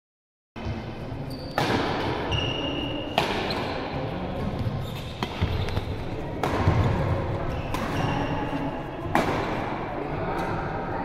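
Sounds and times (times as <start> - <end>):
court shoes squeaking: 0.6 - 9.6
racket hitting shuttlecock: 1.6 - 9.8.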